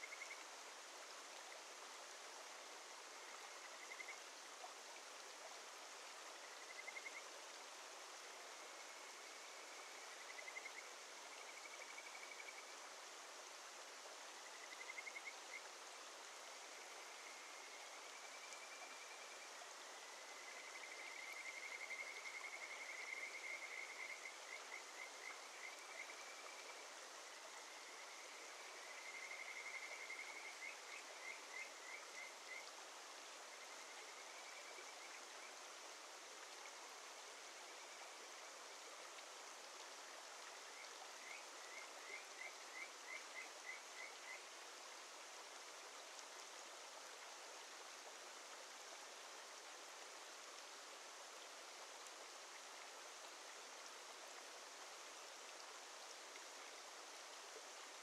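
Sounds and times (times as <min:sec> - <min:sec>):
frogs singing whistled trills: 0:00.0 - 0:00.4, 0:03.2 - 0:04.2, 0:06.4 - 0:07.3, 0:08.9 - 0:12.8, 0:14.5 - 0:15.7, 0:16.8 - 0:26.8, 0:27.4 - 0:32.7, 0:40.8 - 0:44.5
mountain stream rushing: 0:00.0 - 0:58.0.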